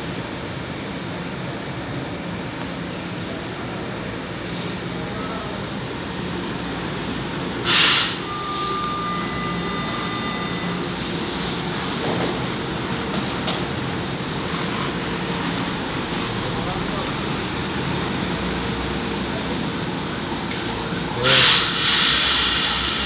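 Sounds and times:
train equipment humming: 0.0s - 23.0s
steady high tones: 7.0s - 12.0s
sharp hiss of air: 7.6s - 8.3s, 21.2s - 23.0s.

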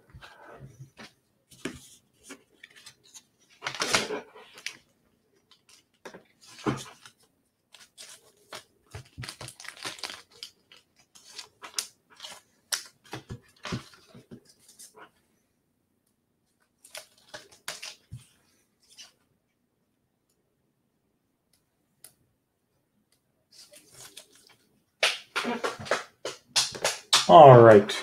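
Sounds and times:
cards rustling in plastic sleeves: 1.5s - 15.0s, 16.7s - 19.2s, 23.5s - 27.0s.

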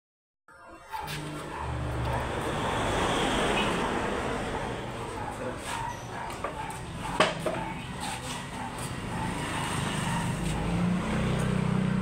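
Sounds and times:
wooden chair knocking on concrete: 7.2s - 7.6s.

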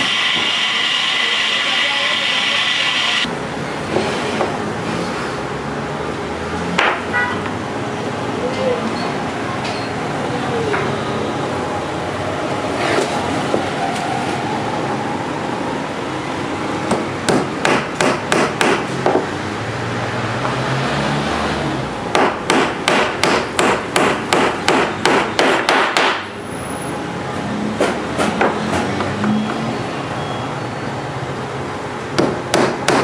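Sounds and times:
hammer driving nail into board: 22.2s - 26.3s.

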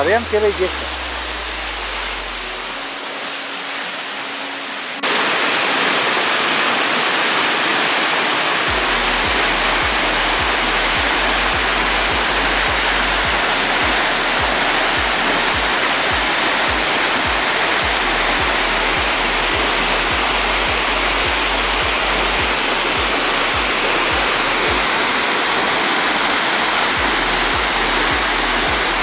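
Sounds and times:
waterfall rushing: 0.0s - 29.0s
background music bass beat: 8.7s - 25.0s, 26.8s - 29.0s.

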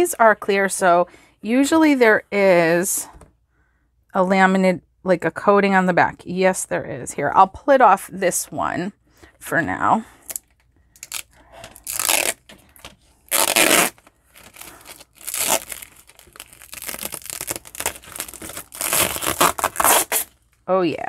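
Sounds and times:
plastic film crinkling in hand: 10.3s - 20.5s
plastic film peeling and crackling: 10.3s - 20.6s.

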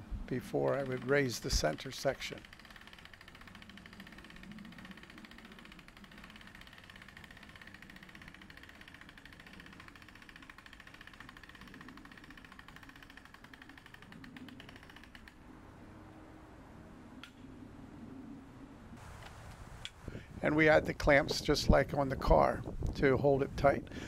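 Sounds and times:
winch ratcheting clicks: 0.4s - 15.4s
wind rumble on microphone: 16.8s - 24.0s.

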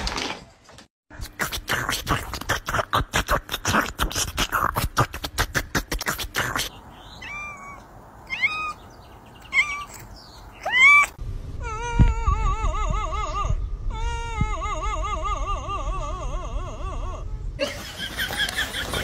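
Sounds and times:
cat meowing: 7.0s - 12.4s.

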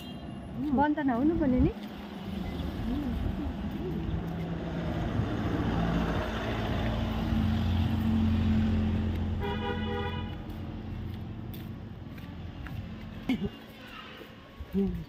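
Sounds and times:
vehicle engine passing by: 1.9s - 9.5s.

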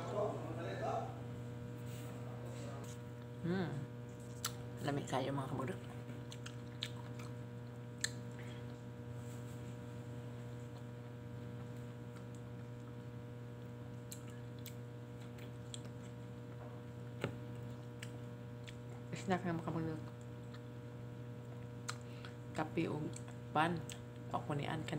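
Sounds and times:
electrical mains hum: 0.0s - 24.9s
person chewing: 4.1s - 4.6s, 6.2s - 8.9s, 13.9s - 16.2s, 17.5s - 19.1s, 21.4s - 22.4s.

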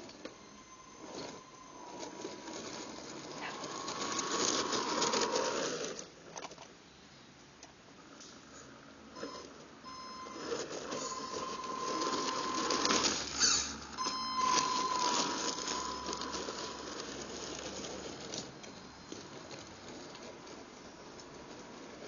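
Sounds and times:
electric motor and gears whining: 0.0s - 6.1s, 9.2s - 22.0s
tyres crunching on gravel: 10.3s - 22.0s.

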